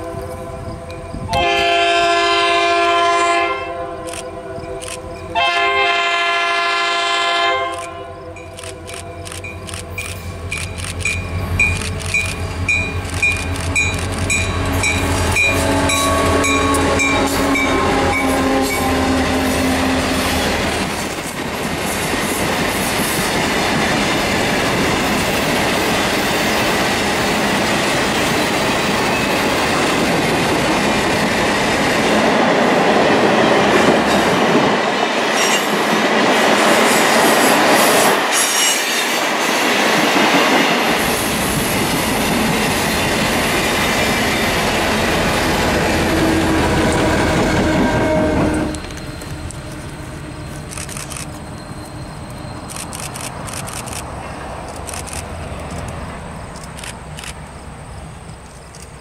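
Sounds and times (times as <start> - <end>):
diesel locomotive engine droning: 0.0 - 59.0
freight cars rumbling on rails: 7.8 - 38.3, 39.1 - 59.0.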